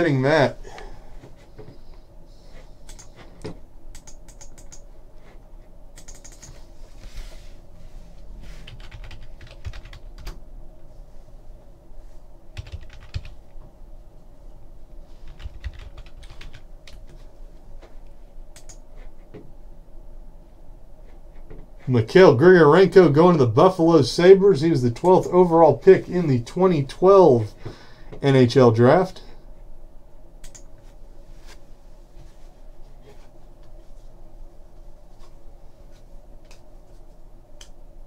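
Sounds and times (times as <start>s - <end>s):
faint steady hum: 0.0s - 38.0s
computer keyboard typing: 2.9s - 3.1s, 3.9s - 4.8s, 6.0s - 6.6s, 8.6s - 10.4s, 12.6s - 13.4s, 15.2s - 17.1s, 18.6s - 18.8s, 30.4s - 30.7s.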